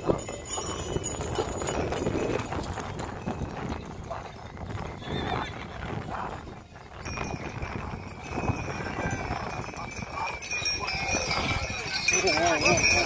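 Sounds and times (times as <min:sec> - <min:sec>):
hooves clip-clopping on dirt: 0:00.0 - 0:13.0
crowd chatter: 0:03.6 - 0:13.0.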